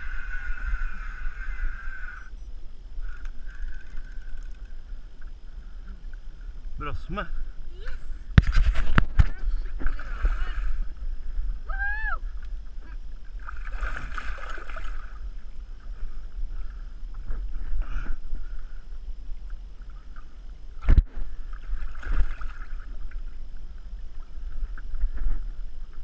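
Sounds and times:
steady low rumble: 0.0 - 26.0
water splashing at boat side: 13.4 - 15.2, 20.8 - 23.3.

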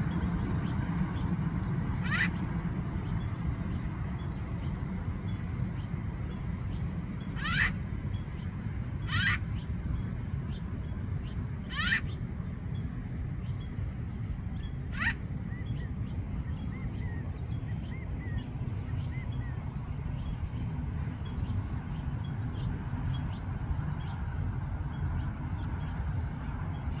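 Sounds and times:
woodpecker harsh rising calls: 2.0 - 2.4, 7.4 - 7.8, 9.0 - 9.4, 11.7 - 12.2, 14.9 - 15.2.

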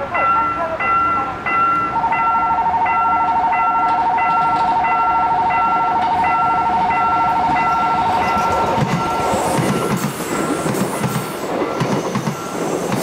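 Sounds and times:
level crossing warning bell: 0.0 - 12.7.

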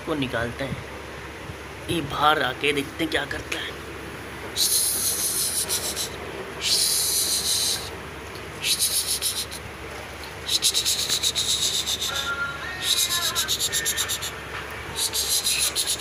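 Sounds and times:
cockatiel hissing: 4.6 - 7.9, 8.6 - 9.7, 10.5 - 12.3, 15.0 - 16.0.

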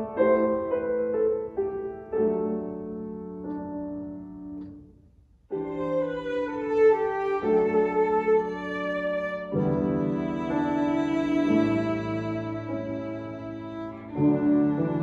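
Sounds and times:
grand piano: 0.0 - 15.0
violin: 5.5 - 15.0.

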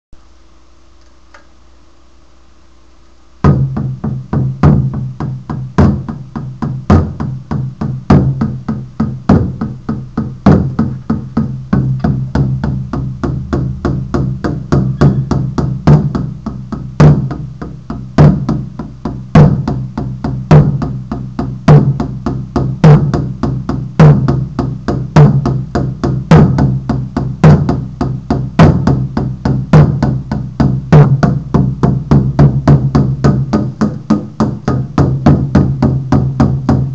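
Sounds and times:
frame drum beaten in rhythm: 3.4 - 36.9.

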